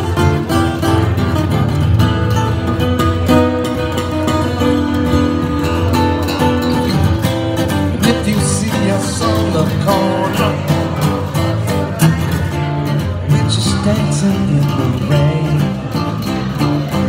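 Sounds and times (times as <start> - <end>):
acoustic guitar strumming: 0.0 - 17.0
person singing: 7.9 - 11.4, 13.3 - 17.0.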